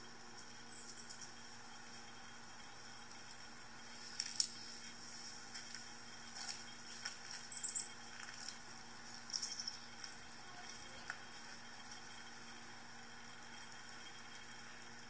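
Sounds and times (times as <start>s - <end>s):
bird chirps from laptop speakers: 7.4s - 8.0s, 9.2s - 9.9s.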